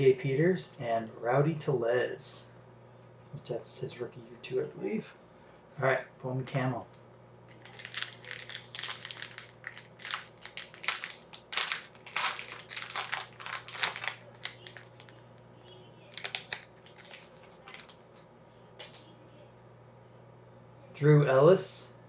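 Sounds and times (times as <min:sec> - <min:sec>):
foil wrapper crinkling: 0:07.5 - 0:15.2, 0:16.1 - 0:18.2.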